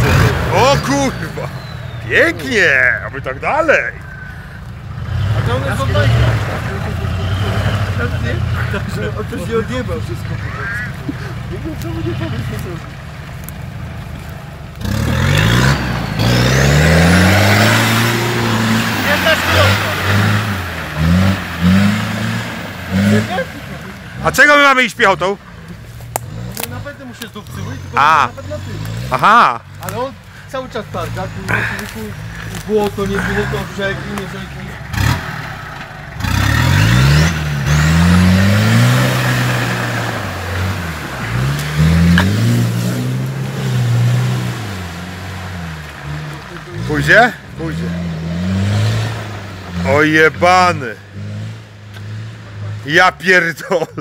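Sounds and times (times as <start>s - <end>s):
engine revving hard: 0.0s - 3.0s, 4.9s - 10.8s, 14.8s - 25.3s, 31.0s - 53.4s
low engine rumble: 0.0s - 15.0s, 17.3s - 37.7s.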